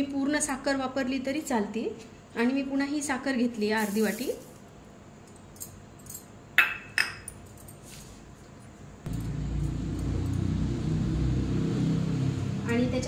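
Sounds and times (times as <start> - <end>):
steady low hum: 7.3 - 13.0.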